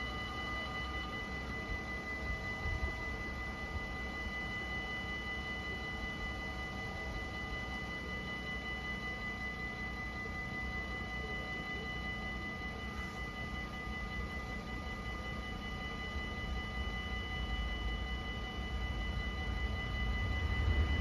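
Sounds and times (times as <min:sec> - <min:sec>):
level crossing warning bells ringing: 0:00.0 - 0:21.0
low rumble: 0:20.2 - 0:21.0.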